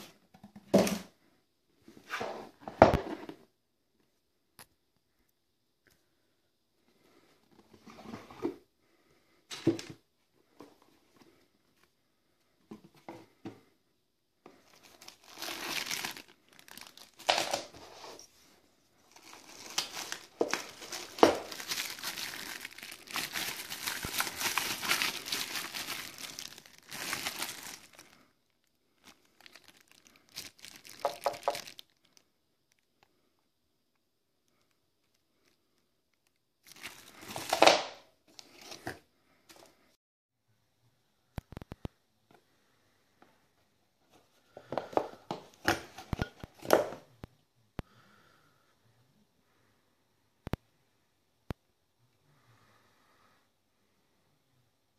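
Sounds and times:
plastic bag crinkling: 0:14.6 - 0:18.1, 0:19.0 - 0:32.9, 0:36.6 - 0:38.0.

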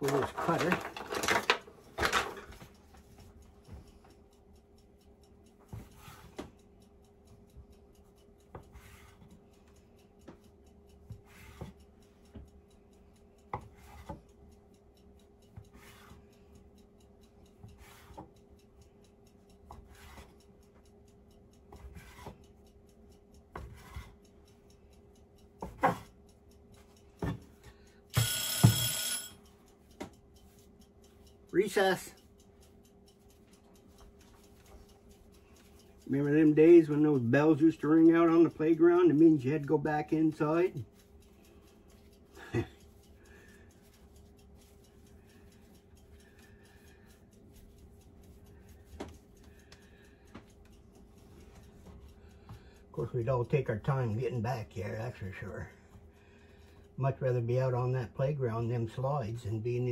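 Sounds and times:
utensils clattering in drawer: 0:00.2 - 0:02.4
bell ringing: 0:28.1 - 0:29.4.

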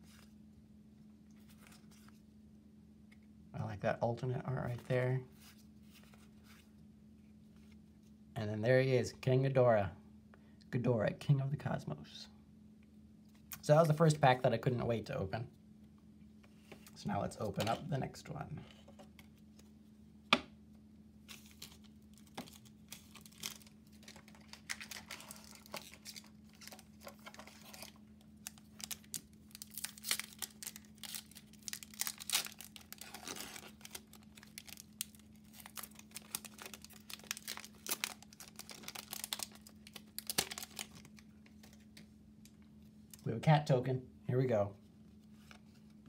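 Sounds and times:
foil wrapper crinkling and tearing: 0:21.2 - 0:41.8.

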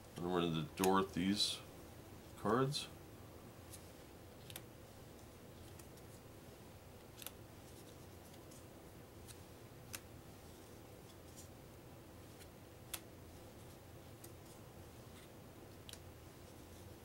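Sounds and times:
cards snapping: 0:04.4 - 0:04.7, 0:07.1 - 0:07.4.

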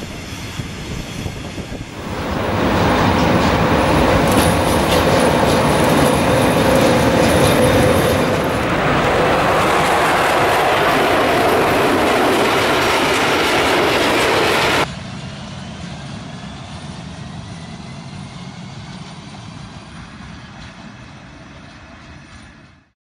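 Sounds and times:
train passing rumble: 0:00.0 - 0:14.9
distant electric locomotive: 0:00.0 - 0:22.9.

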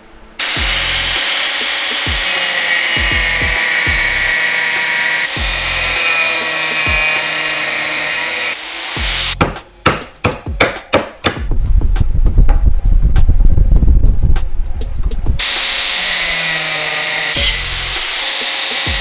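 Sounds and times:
angle grinder cutting steel: 0:00.4 - 0:09.4, 0:15.4 - 0:19.0.

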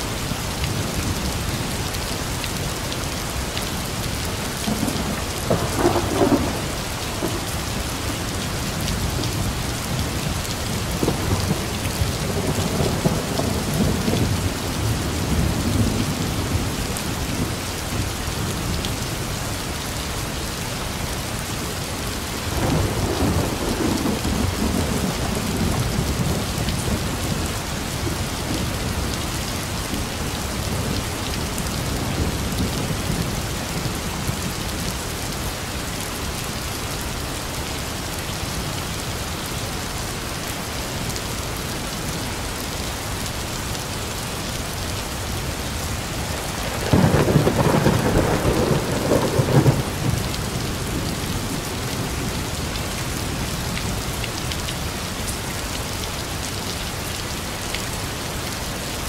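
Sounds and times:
heavy rain: 0:00.0 - 0:59.0
thunder clap and rumbles: 0:04.6 - 0:07.5, 0:46.1 - 0:54.0.

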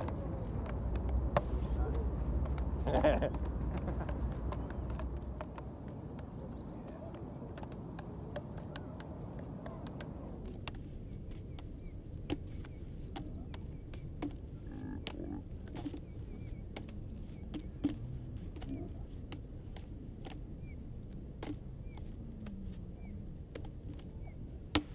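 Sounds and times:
juggling clubs landing in hands: 0:00.0 - 0:11.4
low background noise: 0:00.0 - 0:24.9.

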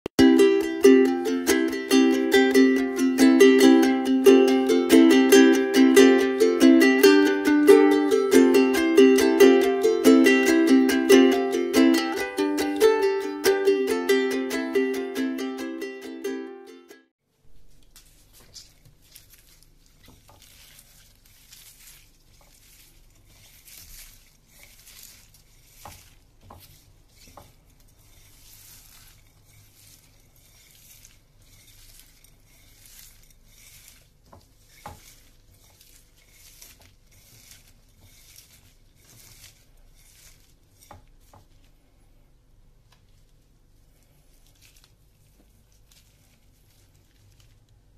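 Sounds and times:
wet rustling and squishing: 0:17.4 - 0:42.0, 0:42.8 - 0:47.9.

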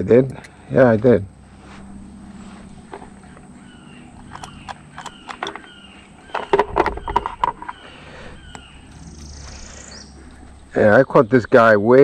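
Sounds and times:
bird calling: 0:01.5 - 0:12.0.

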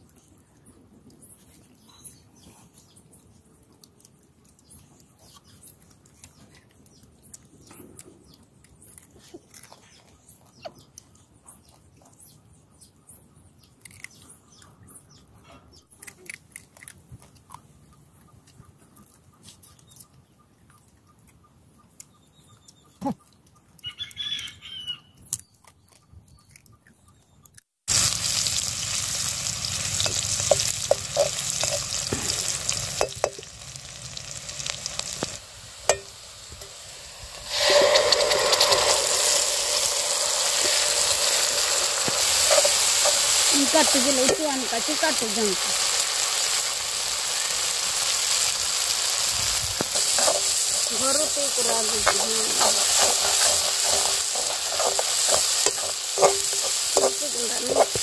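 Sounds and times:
bird chirps: 0:19.6 - 0:27.6
onions sizzling in hot oil: 0:27.9 - 0:58.0.

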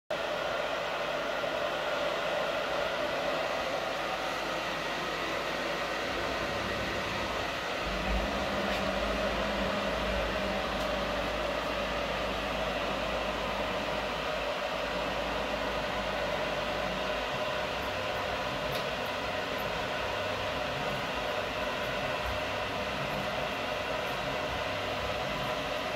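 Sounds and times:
milling machine whirring: 0:00.2 - 0:25.9
deeper hum: 0:06.0 - 0:18.7.

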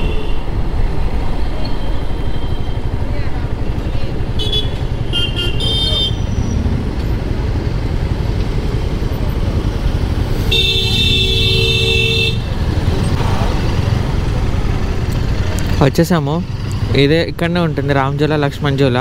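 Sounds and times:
wind and road noise rumble: 0:00.0 - 0:19.0
vehicle horns honking: 0:04.3 - 0:06.7, 0:10.4 - 0:12.6.

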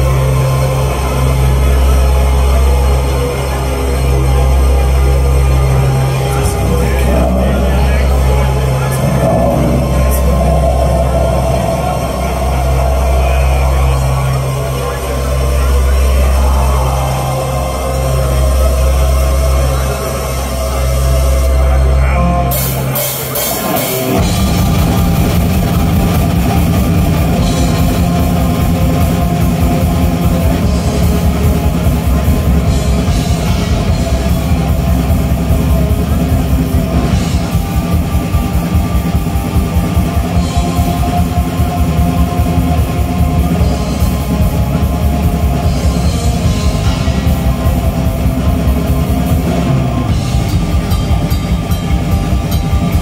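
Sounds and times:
low droning intro: 0:00.0 - 0:51.7
distorted electric guitars: 0:00.0 - 0:53.0
fast drumming on drum kit: 0:22.6 - 0:53.0.

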